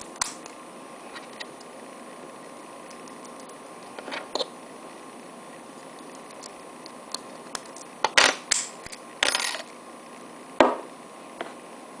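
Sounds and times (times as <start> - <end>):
knock on wooden desk: 10.6 - 10.9.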